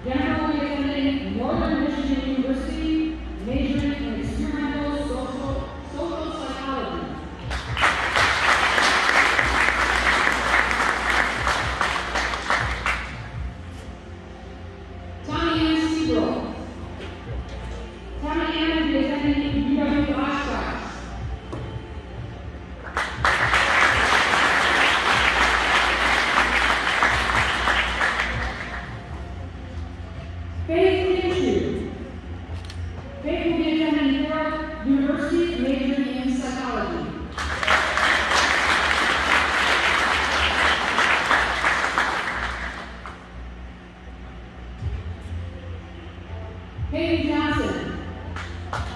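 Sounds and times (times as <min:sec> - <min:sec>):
audience applause: 0:07.5 - 0:13.1, 0:22.9 - 0:28.9, 0:37.4 - 0:43.2.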